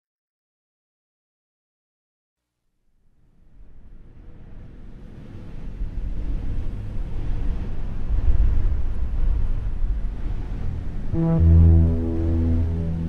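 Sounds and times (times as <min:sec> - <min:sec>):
low rumbling drone: 0:05.1 - 0:13.0.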